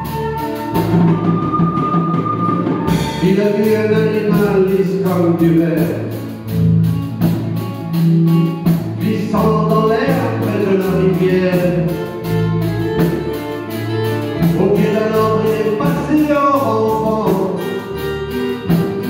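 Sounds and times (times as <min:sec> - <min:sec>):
bass: 0:00.0 - 0:19.0
strummed acoustic guitars: 0:00.0 - 0:19.0
person singing: 0:02.9 - 0:05.8, 0:09.0 - 0:12.2, 0:14.4 - 0:17.9.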